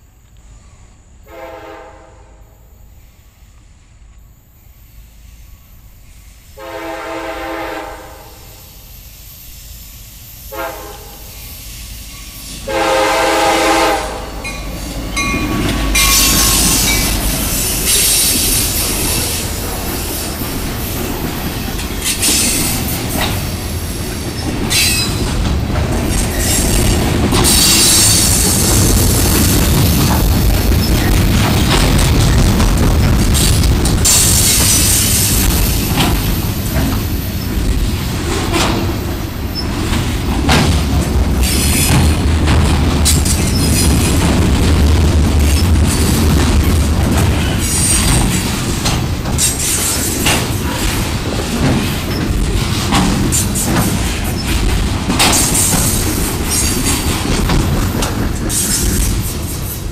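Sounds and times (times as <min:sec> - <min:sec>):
freight train rumble: 0:00.0 - 0:59.9
locomotive horn: 0:01.2 - 0:02.7, 0:06.6 - 0:08.6, 0:10.5 - 0:11.3, 0:12.6 - 0:17.2
wheels squealing: 0:43.0 - 0:44.3.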